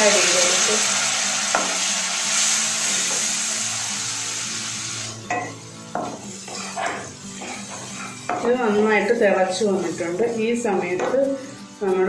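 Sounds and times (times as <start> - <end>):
paste sizzling in oil: 0.0 - 11.5.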